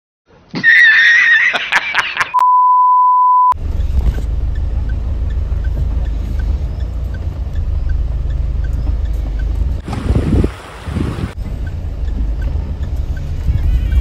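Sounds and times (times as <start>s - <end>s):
man laughing: 0.5s - 2.4s
censor beep: 2.4s - 3.6s
off-road vehicle rumble: 3.6s - 14.0s.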